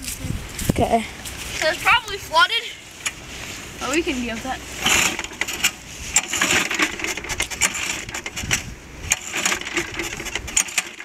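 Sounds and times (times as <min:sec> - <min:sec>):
engine turning over with rattles: 0:04.7 - 0:11.0
recoil starter cord whirring: 0:04.7 - 0:11.0.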